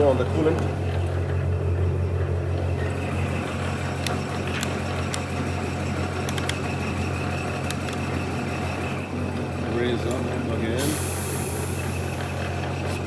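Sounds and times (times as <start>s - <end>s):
band saw humming: 0.0s - 13.0s.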